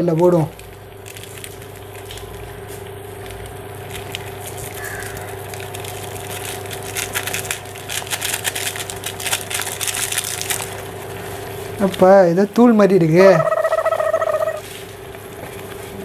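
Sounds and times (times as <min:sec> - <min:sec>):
noodles simmering: 0:00.0 - 0:12.4
electrical hum of cooktop: 0:00.0 - 0:16.0
foil sachet crinkling: 0:00.0 - 0:16.0.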